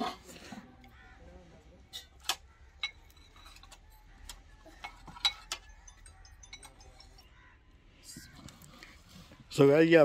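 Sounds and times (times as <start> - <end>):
spoons clinking on ceramic: 1.9 - 7.4.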